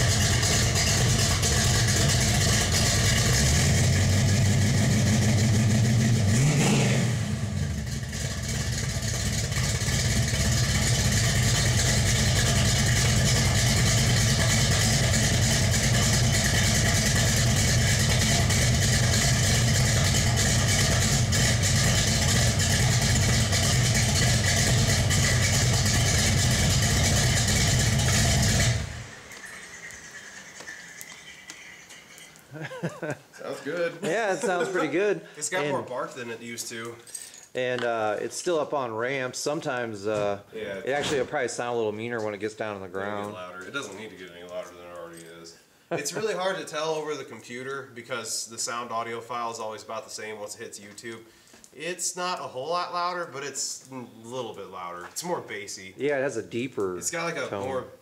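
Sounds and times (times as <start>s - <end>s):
car engine idling with a lope: 0.0s - 6.4s, 7.2s - 30.7s
engine shutting off: 0.0s - 31.3s.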